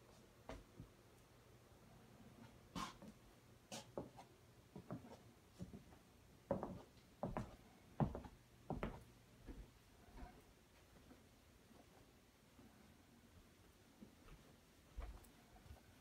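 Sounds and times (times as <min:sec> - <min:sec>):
faint footsteps walking: 0:00.0 - 0:01.0, 0:02.4 - 0:16.0.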